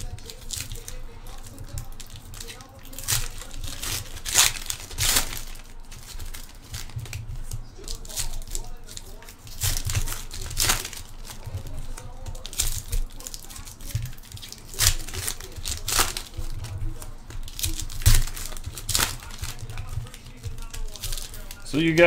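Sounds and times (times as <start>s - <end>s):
foil wrappers rustling and ripping: 0.0s - 22.0s.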